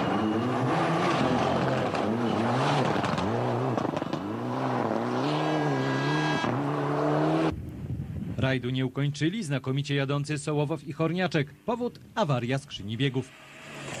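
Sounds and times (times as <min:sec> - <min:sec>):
rally car engine revving: 0:00.0 - 0:07.5.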